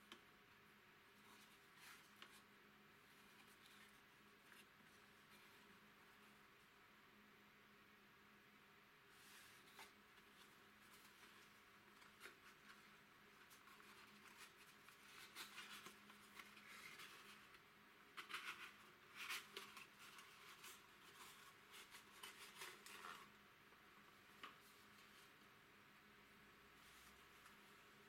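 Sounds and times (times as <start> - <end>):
cardboard rustling and scraping: 9.1 - 23.3.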